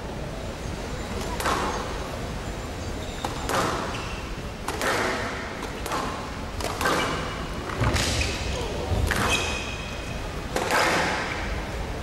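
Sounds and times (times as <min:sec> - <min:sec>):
shoes squeaking on court floor: 0:02.9 - 0:04.4, 0:06.8 - 0:10.2
squash ball hits with echo: 0:03.3 - 0:03.9, 0:04.6 - 0:09.5.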